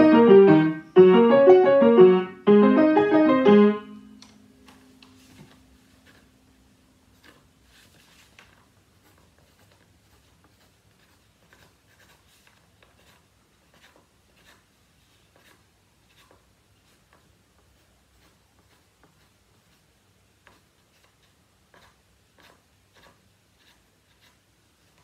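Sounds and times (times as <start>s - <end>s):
pencil writing on paper: 9.0s - 14.7s, 15.3s - 19.8s, 20.4s - 25.0s.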